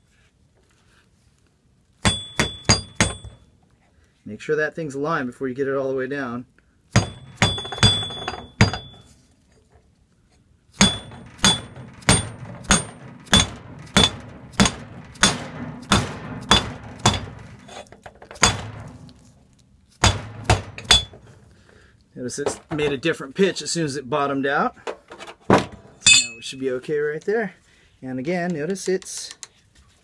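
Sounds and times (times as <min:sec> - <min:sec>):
hammer knocking on steel: 0:02.1 - 0:03.4, 0:07.0 - 0:09.0, 0:10.8 - 0:19.2, 0:20.0 - 0:21.3.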